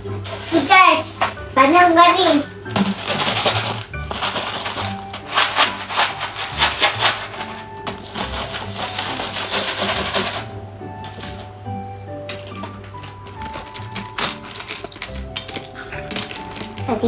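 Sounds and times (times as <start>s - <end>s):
background music: 0.0s - 17.0s
plastic toy blocks clattering: 2.7s - 10.5s, 12.3s - 17.0s.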